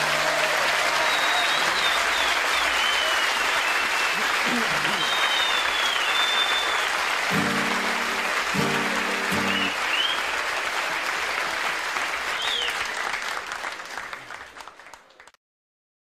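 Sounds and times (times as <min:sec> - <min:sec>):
audience applauding: 0:00.0 - 0:15.4
whistles: 0:00.9 - 0:07.1, 0:09.4 - 0:10.4, 0:12.3 - 0:13.2
strummed guitar chord: 0:07.3 - 0:09.7.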